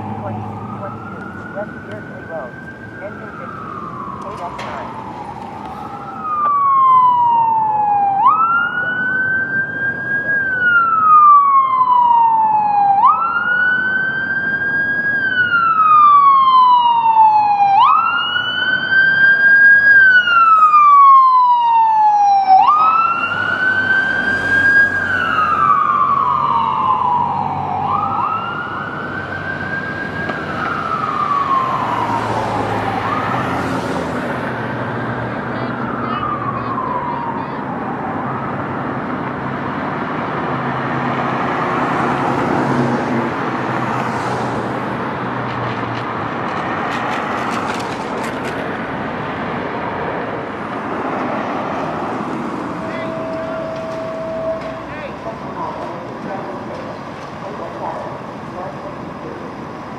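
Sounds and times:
siren wailing: 0.0 - 46.4, 47.4 - 59.9.

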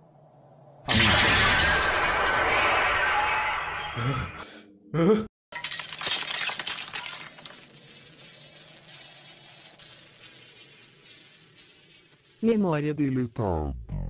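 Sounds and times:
glass shattering: 0.9 - 4.1, 5.5 - 8.3.

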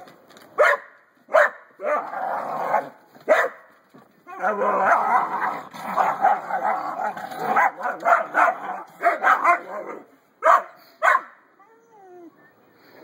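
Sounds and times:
dog barking: 0.6 - 2.0, 2.7 - 3.7, 5.9 - 6.8, 7.5 - 11.4.

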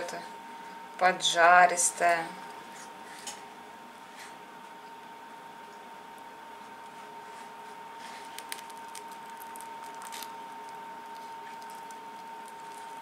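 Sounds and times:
faint steady high whine: 0.0 - 13.0
knife crackling into chicken skin: 8.0 - 13.0.

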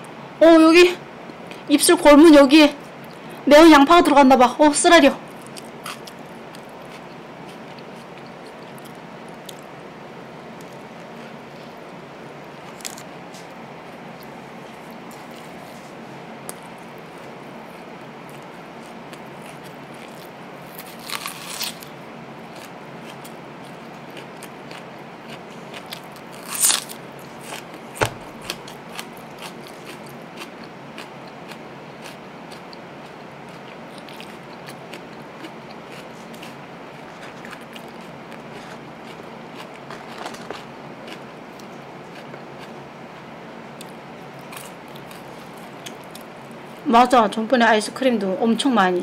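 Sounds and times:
crunchy bites: 18.2 - 21.9, 22.5 - 42.8
sharp crunch of raw onion: 18.4 - 21.9, 24.2 - 41.3.

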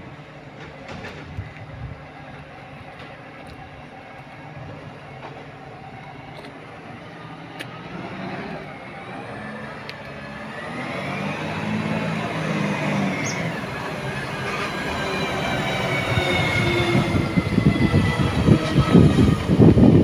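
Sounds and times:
garbage truck diesel engine: 0.0 - 20.0.

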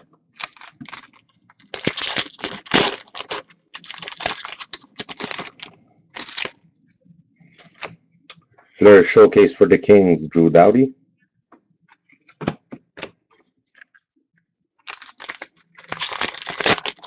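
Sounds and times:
card packaging crinkling: 0.4 - 6.6, 14.8 - 17.0.

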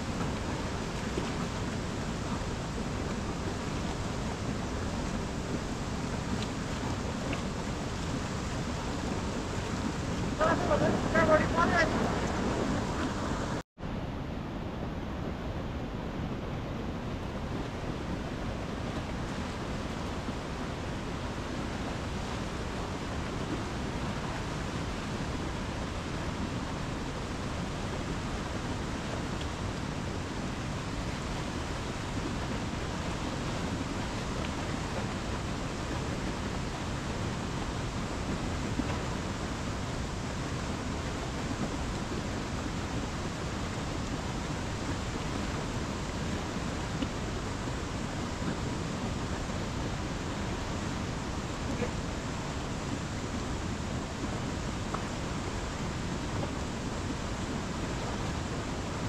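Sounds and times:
river rushing over boulders: 0.0 - 59.0.

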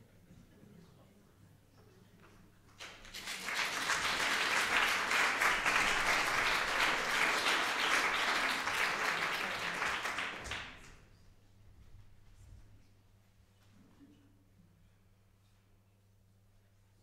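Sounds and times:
audience applause: 2.8 - 11.0.

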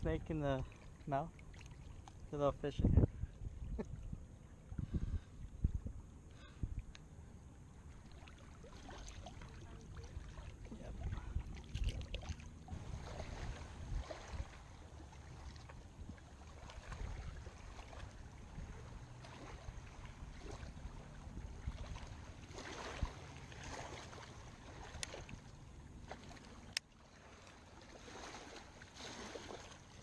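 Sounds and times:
wind rumbling on microphone: 2.3 - 26.6
waves lapping on rocks: 8.2 - 30.0.

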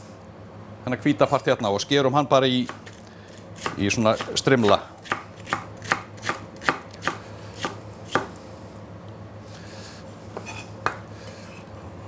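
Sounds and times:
knife strikes on wooden board: 3.6 - 8.3.

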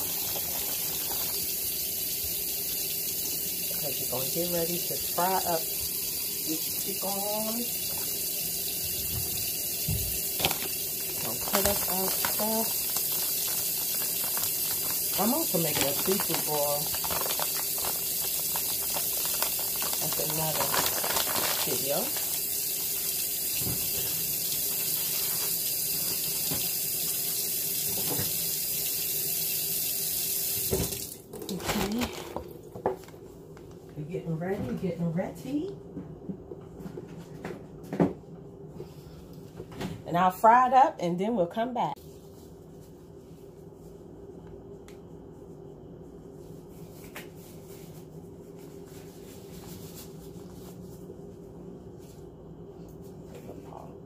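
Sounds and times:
tap running into sink: 8.9 - 11.7, 30.6 - 31.2.

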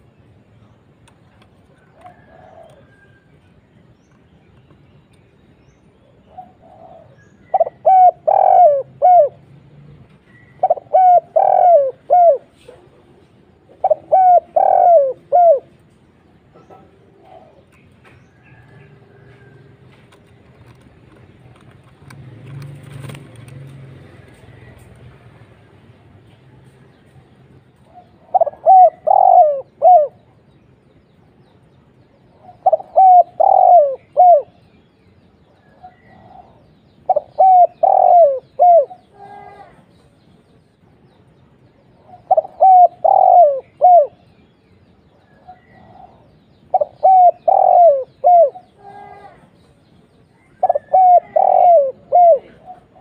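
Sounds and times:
dove cooing: 1.7 - 3.2, 6.2 - 9.6, 10.3 - 16.0, 16.6 - 19.8, 27.8 - 30.4, 32.3 - 34.7, 35.6 - 39.8, 42.0 - 44.2, 45.1 - 49.5, 50.4 - 53.0.

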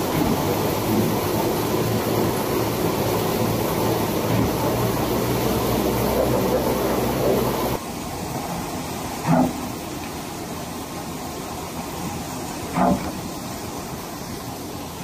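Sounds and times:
machine rollers running: 0.0 - 7.8.

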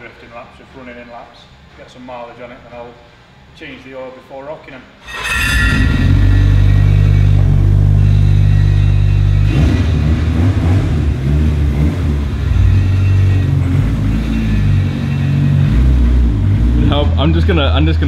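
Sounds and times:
car engine idling and revving: 6.0 - 18.0.

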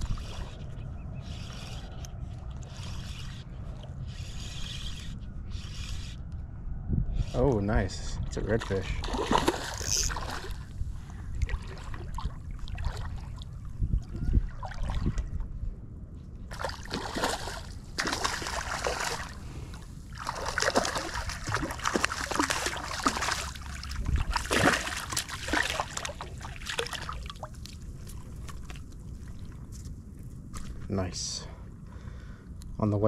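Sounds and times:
fish thrashing and splashing water: 9.0 - 10.7, 16.5 - 19.4, 20.1 - 27.8.

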